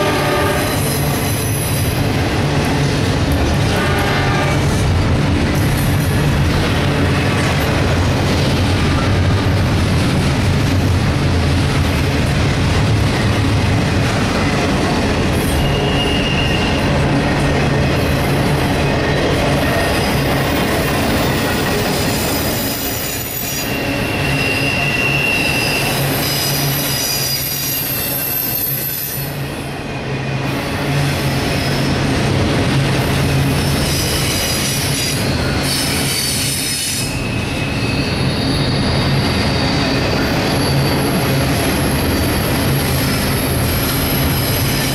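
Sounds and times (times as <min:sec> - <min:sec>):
freight train wheels rumbling on rail: 0:00.0 - 0:44.9
high-pitched wheel squeal: 0:15.4 - 0:16.9, 0:22.0 - 0:29.4, 0:33.8 - 0:44.9.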